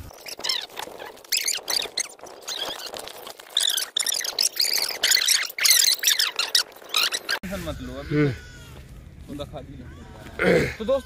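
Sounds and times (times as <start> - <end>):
small animals squeaking: 0.0 - 8.6.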